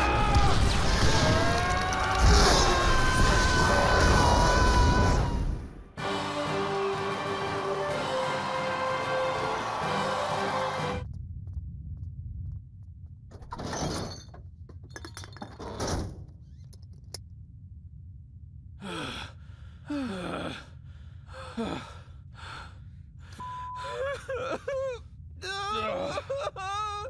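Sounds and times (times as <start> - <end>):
wavering wails: 0.0 - 5.6
cartoon characters gasping and groaning: 23.8 - 27.0.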